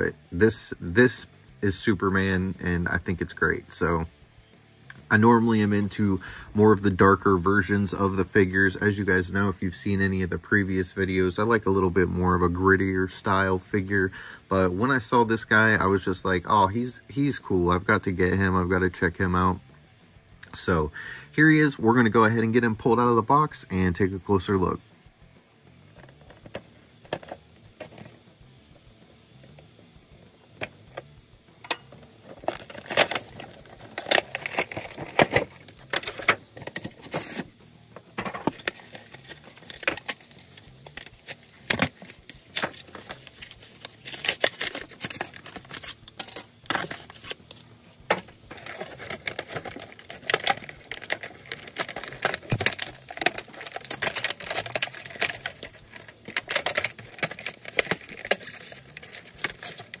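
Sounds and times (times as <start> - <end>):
plastic crinkling and tearing: 32.2 - 37.5, 38.2 - 60.0.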